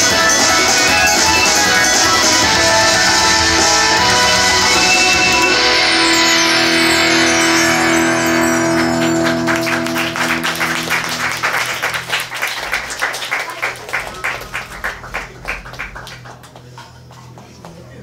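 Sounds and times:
held music chord: 0.0s - 13.0s
audience applause: 0.0s - 18.0s.

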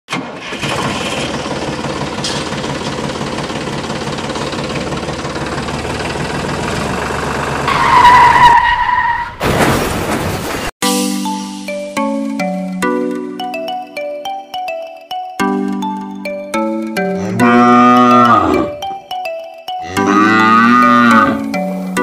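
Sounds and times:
tractor engine running: 0.1s - 8.4s.

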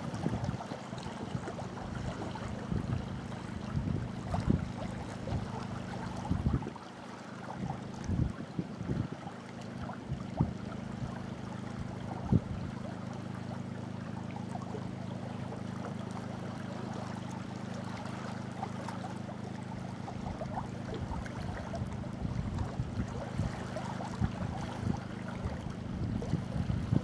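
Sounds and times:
steady low hum: 0.0s - 27.0s
water lapping around rock: 0.0s - 27.0s.

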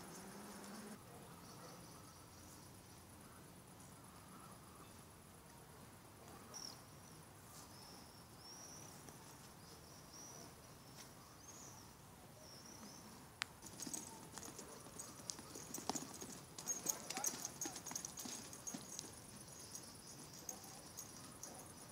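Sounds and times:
hooves on sand: 13.6s - 21.4s.

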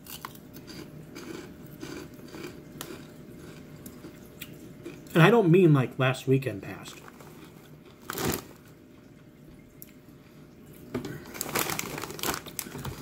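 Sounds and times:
plastic snack bag rustling: 6.9s - 8.7s, 11.1s - 13.0s.

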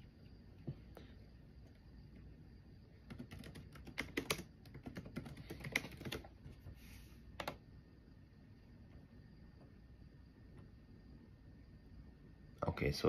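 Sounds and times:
typing on computer keyboard: 3.0s - 6.3s, 7.4s - 7.6s.

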